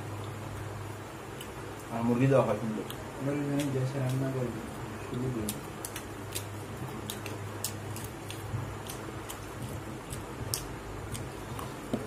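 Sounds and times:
steady low hum: 0.0 - 12.0
eating clicks and smacks: 1.3 - 2.0, 2.6 - 12.0.

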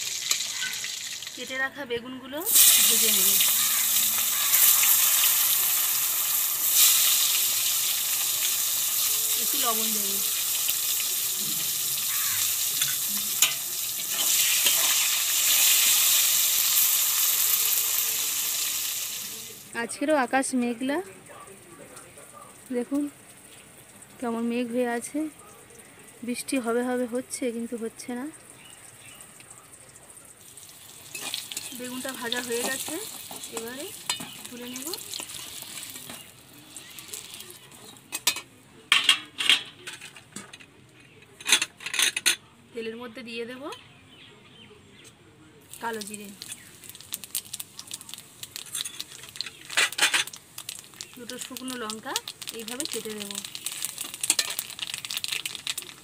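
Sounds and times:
eggplant sizzling in hot oil: 0.0 - 21.1, 22.6 - 29.5, 30.2 - 38.4, 45.7 - 56.0
metal spatula tapping pan: 12.8 - 15.0, 32.4 - 34.6.

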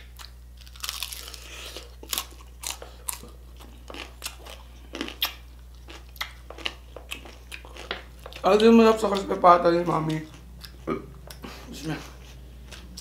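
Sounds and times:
crunchy biting and chewing: 0.0 - 8.5.

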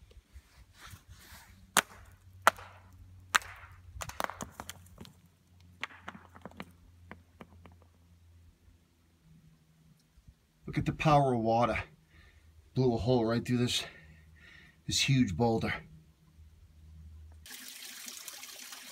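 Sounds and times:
footsteps on rock and grit: 5.8 - 7.9.

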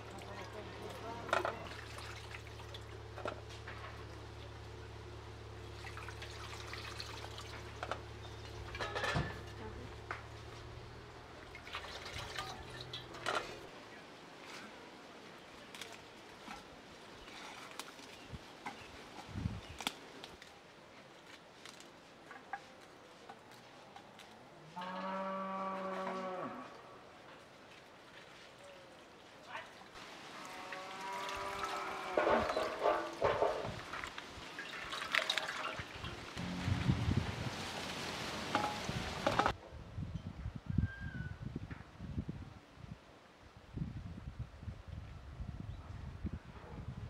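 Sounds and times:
water pouring into metal basin: 1.3 - 3.3, 5.6 - 8.8, 11.4 - 13.7, 31.1 - 37.4
lettuce leaves snapping: 19.7 - 20.6
cow mooing: 24.8 - 26.8, 30.4 - 32.8, 36.4 - 36.8.

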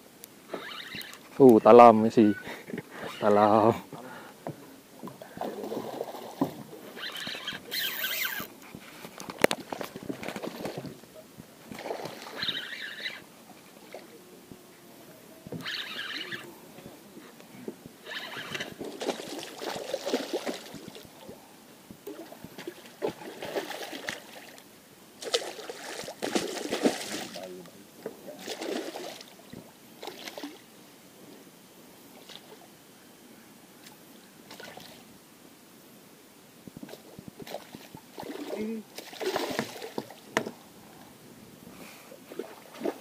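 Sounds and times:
fish thrashing and splashing: 18.5 - 21.1, 25.2 - 27.4, 37.4 - 40.2.

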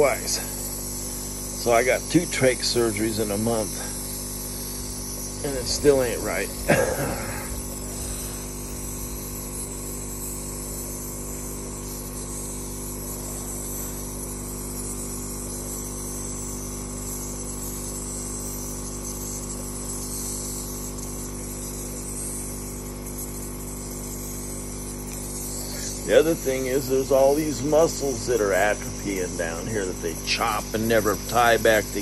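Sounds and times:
hiss of air: 0.0 - 15.1
compressor humming: 0.0 - 32.0.

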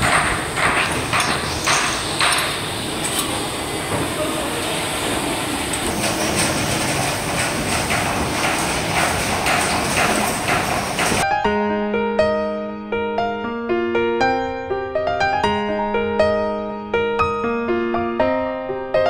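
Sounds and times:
clanks and knocks: 0.0 - 3.3, 5.8 - 11.2
machines running: 0.0 - 11.2.

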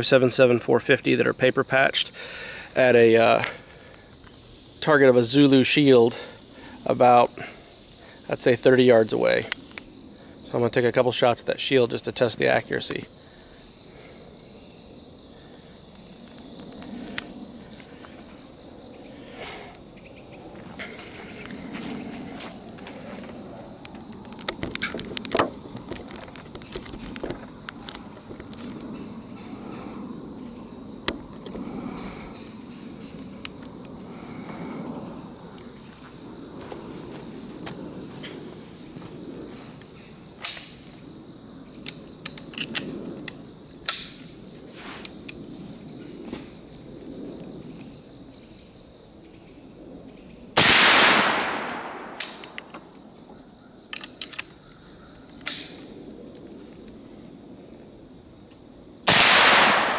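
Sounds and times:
insects droning: 0.0 - 59.9
rifle handling clicks and knocks: 23.8 - 28.6, 41.8 - 44.2, 51.7 - 52.9, 53.9 - 54.6, 55.4 - 55.8
rifle shot with ringing tail: 50.6 - 52.4, 59.1 - 59.9.

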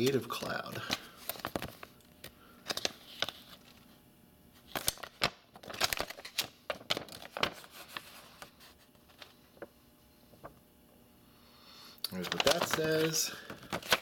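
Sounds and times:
paper crinkling and rustling: 0.1 - 2.0, 2.6 - 4.0, 4.6 - 9.7, 12.1 - 14.0.

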